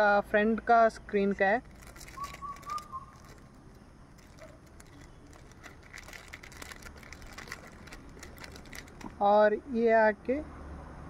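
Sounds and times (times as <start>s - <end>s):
plastic pack crinkling: 1.6s - 9.2s.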